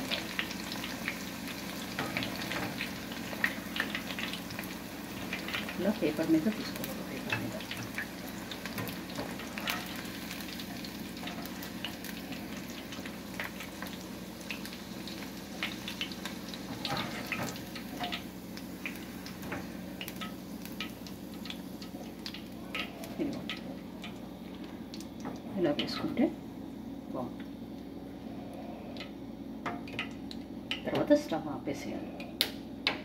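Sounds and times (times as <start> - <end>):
chicken deep-frying in oil: 0.0 - 26.4
wire strainer scooping: 8.7 - 11.9
oil crackles and pops: 20.0 - 25.5.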